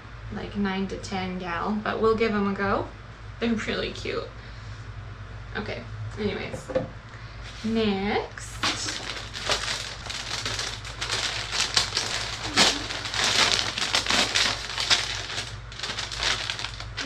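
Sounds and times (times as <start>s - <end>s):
plastic bag crinkling: 8.5s - 17.0s.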